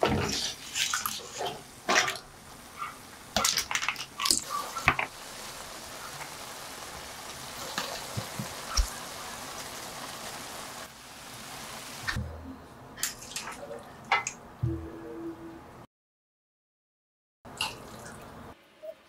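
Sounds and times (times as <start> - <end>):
pan sizzling: 3.7 - 12.2.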